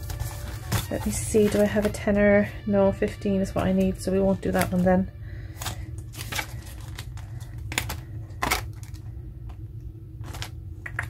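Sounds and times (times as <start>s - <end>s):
paper rustling: 0.0s - 2.0s, 5.5s - 9.0s
low steady hum: 0.0s - 11.0s.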